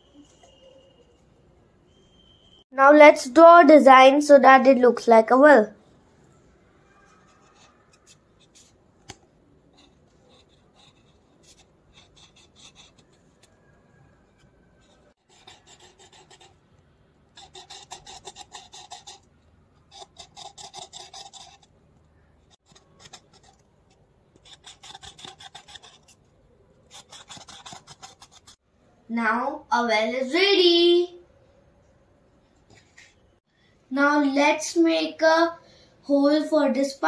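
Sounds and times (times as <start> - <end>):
marker scratching on paper: 7.0 - 13.5, 14.8 - 16.6, 17.4 - 21.8, 22.4 - 26.2, 26.9 - 28.6.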